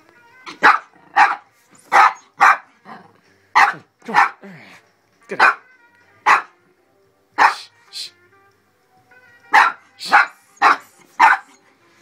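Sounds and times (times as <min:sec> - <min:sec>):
dog barking: 0:00.5 - 0:02.7, 0:03.6 - 0:04.4, 0:05.4 - 0:05.7, 0:06.3 - 0:06.6, 0:07.4 - 0:07.7, 0:09.5 - 0:11.6.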